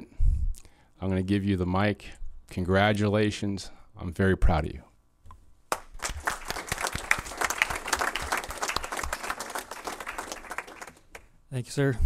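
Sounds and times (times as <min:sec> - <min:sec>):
audience applauding: 0:05.7 - 0:11.3.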